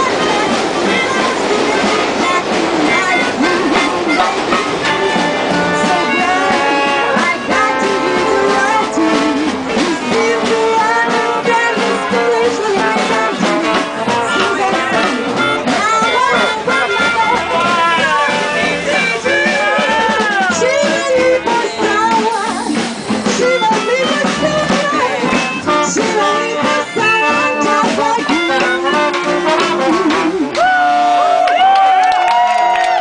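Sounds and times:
jazz band playing swing: 0:00.0 - 0:31.4
brass horns with bending notes: 0:00.0 - 0:31.5.

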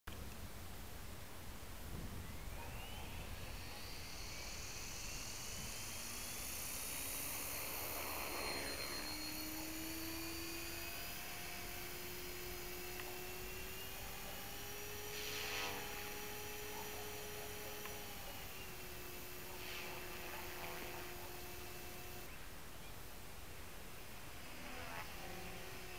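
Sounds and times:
rc helicopter motor whine: 0:02.1 - 0:22.4, 0:23.8 - 0:25.9
rotor blades whooshing: 0:02.4 - 0:16.8.

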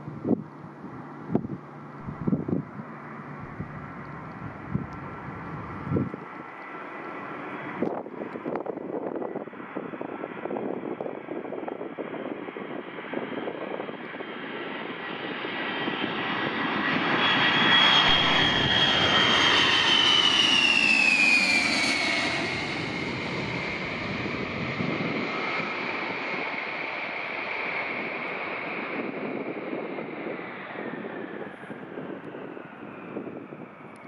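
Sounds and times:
high engine whine: 0:00.0 - 0:09.5, 0:15.1 - 0:27.2
jet engines roaring: 0:00.1 - 0:34.0.

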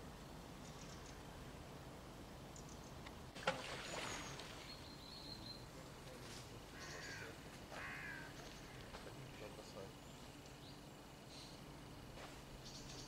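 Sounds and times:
faint birdsong: 0:00.0 - 0:13.0
crow cawing: 0:06.7 - 0:08.9.

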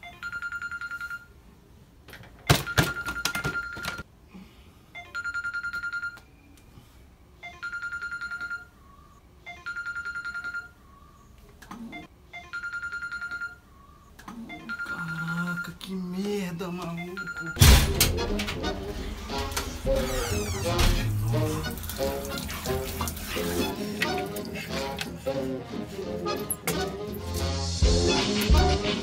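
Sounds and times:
phone ringing with trilling tone: 0:00.0 - 0:01.4, 0:02.5 - 0:04.0, 0:05.0 - 0:06.2, 0:07.4 - 0:08.8, 0:09.4 - 0:10.8, 0:11.8 - 0:13.7, 0:14.4 - 0:21.4.

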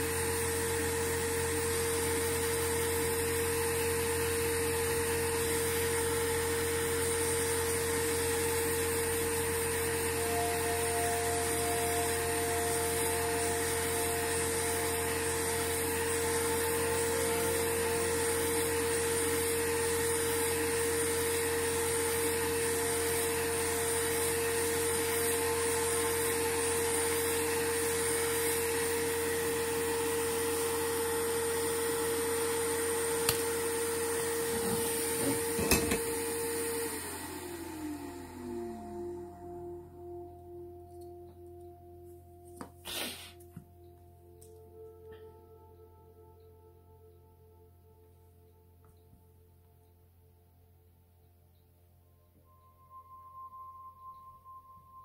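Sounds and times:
small electric motor whirring: 0:00.0 - 0:39.5.

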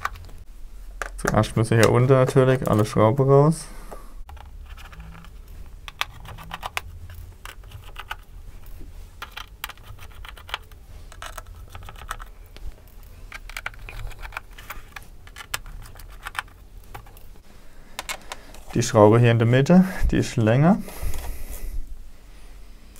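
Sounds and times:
screwdriver turning small screws: 0:09.2 - 0:12.3.

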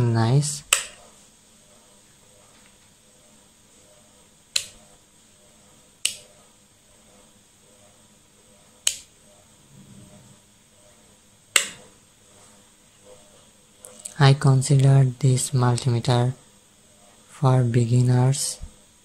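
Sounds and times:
rotary switch clicking: 0:00.7 - 0:01.0, 0:04.5 - 0:04.8, 0:06.0 - 0:06.3, 0:08.8 - 0:09.1, 0:11.5 - 0:11.9.

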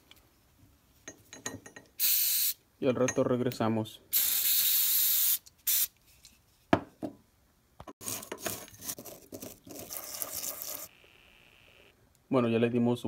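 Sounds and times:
aerosol spray hissing: 0:04.2 - 0:05.9
scraper scraping grease: 0:08.0 - 0:10.9.

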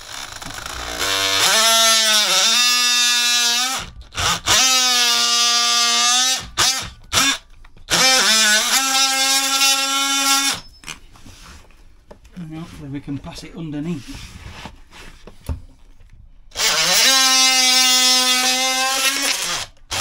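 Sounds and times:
oscillating tool buzzing whine: 0:00.0 - 0:07.3.

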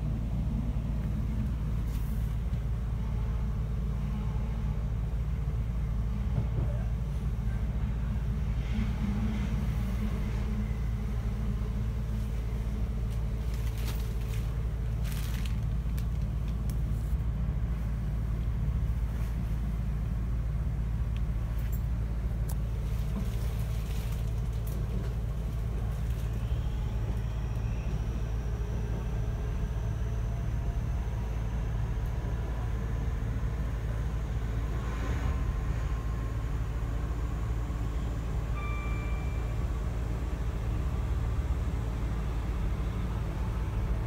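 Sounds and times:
train wheels rumbling on track: 0:00.0 - 0:44.0
faint high whine: 0:06.6 - 0:15.6, 0:21.4 - 0:44.0.

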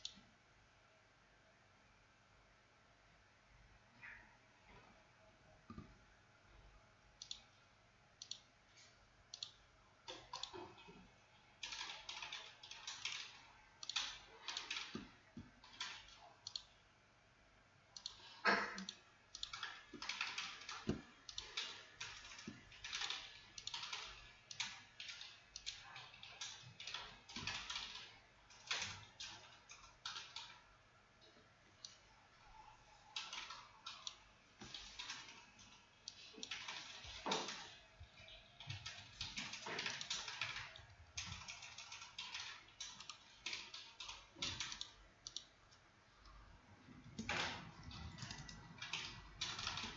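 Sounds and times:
mouse clicking: 0:07.2 - 0:07.5, 0:08.2 - 0:10.9, 0:11.6 - 0:16.7, 0:18.0 - 0:30.6, 0:31.8 - 0:45.8
typing on computer keyboard: 0:09.4 - 0:11.0, 0:11.6 - 0:16.7, 0:18.0 - 0:30.6, 0:33.0 - 0:45.5, 0:47.1 - 0:49.9.

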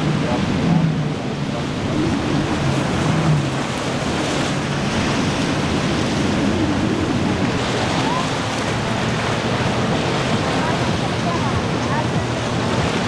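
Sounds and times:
surf breaking and washing: 0:00.0 - 0:13.0
wind buffeting microphone: 0:00.0 - 0:13.0.

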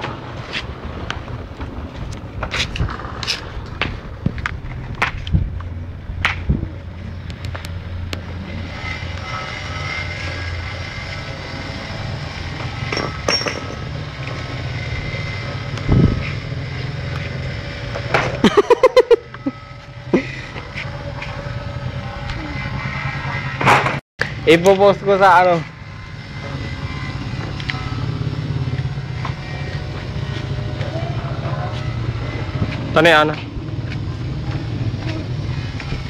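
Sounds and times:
skateboard wheels rolling on pavement: 0:00.0 - 0:07.8.

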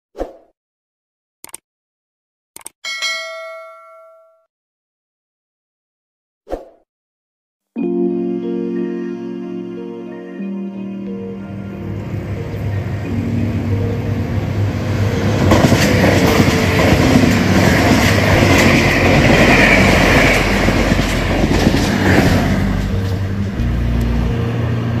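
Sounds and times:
train passing at speed: 0:11.4 - 0:25.0
wheels clacking over rail joints: 0:15.2 - 0:23.7.

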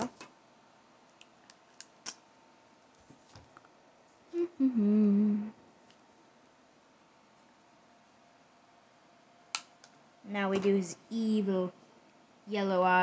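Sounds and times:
person humming: 0:04.3 - 0:05.6.

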